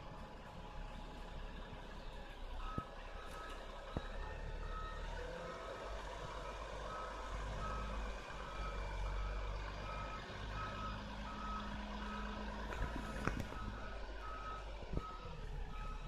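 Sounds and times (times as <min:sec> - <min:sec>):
bus engine running: 0:00.0 - 0:16.0
bus reversing alarm beeping: 0:00.0 - 0:16.0.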